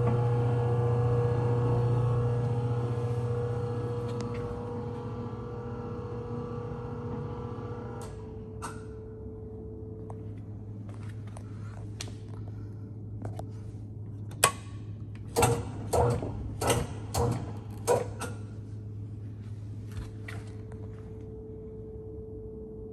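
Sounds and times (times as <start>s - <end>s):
blender drive low hum: 0.0s - 8.2s.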